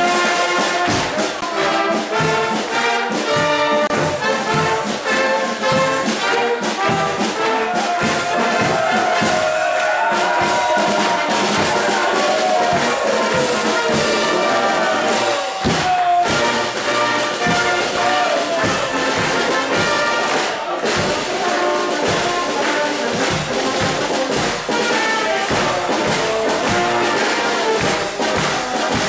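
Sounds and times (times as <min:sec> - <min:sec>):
marching band playing: 0:00.0 - 0:29.0.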